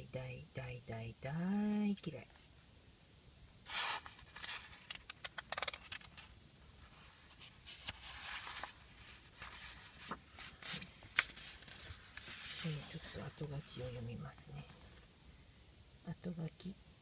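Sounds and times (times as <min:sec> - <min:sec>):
paper pages turning: 0:03.7 - 0:14.0.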